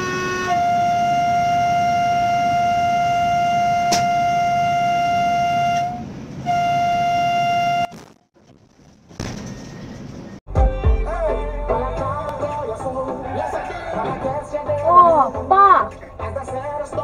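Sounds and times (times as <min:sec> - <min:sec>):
train rumbling on track: 0:00.0 - 0:07.7
train horn blasts: 0:00.0 - 0:07.9.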